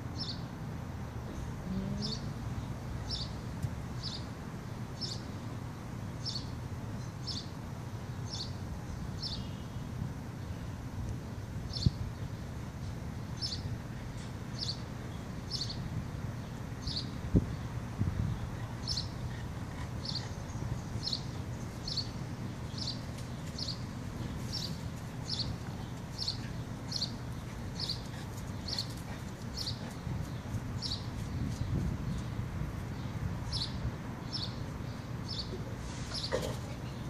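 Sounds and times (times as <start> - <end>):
bird chirping: 20.0 - 37.0.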